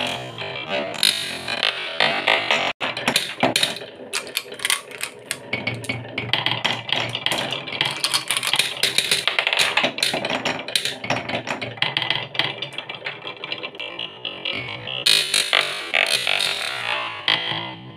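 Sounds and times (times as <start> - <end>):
marbles clicking on wood: 3.1 - 13.3.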